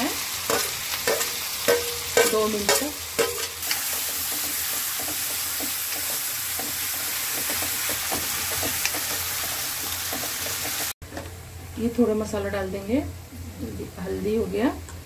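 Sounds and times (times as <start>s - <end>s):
onions sizzling in hot oil: 0.0s - 11.0s
metal spoon scraping a pan: 0.5s - 10.9s.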